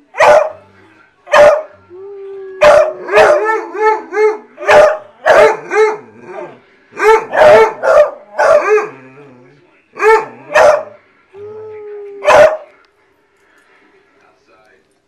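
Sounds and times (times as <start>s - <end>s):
dog howling: 1.9s - 4.5s
dogs baying: 2.6s - 9.4s, 10.0s - 11.0s.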